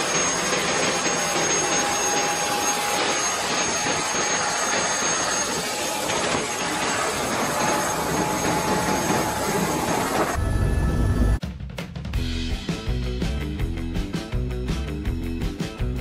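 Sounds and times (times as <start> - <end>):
helicopter engine and rotor: 0.0 - 11.4.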